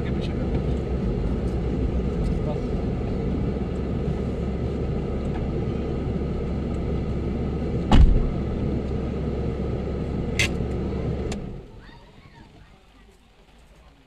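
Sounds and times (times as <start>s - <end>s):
car engine idling: 0.0s - 13.4s
car door shutting: 7.8s - 8.4s.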